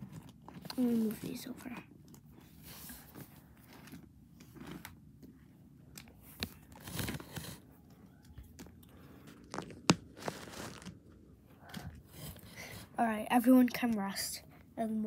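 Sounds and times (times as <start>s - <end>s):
plastic figurines rustling on carpet: 0.0s - 7.8s, 8.4s - 12.6s.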